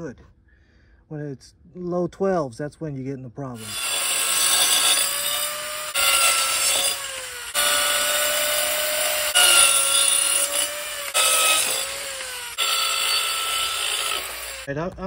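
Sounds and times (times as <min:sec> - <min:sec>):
circular saw cutting panels: 0:03.6 - 0:14.7.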